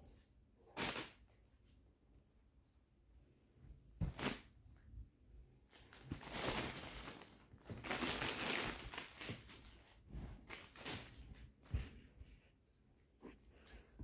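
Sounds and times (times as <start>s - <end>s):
cloth rustling in swishes: 9.2s - 14.0s.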